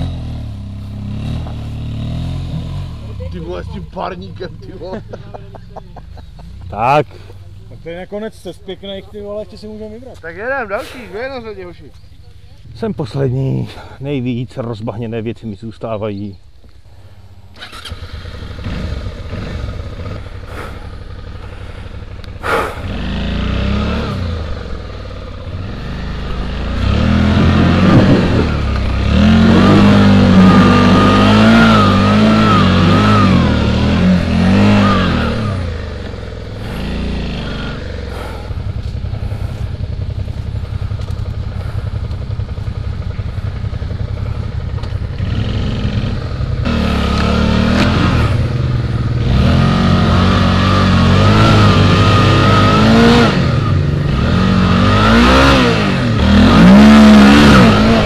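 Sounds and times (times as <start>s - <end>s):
motorcycle engine revving: 0.0s - 13.9s, 16.7s - 58.0s.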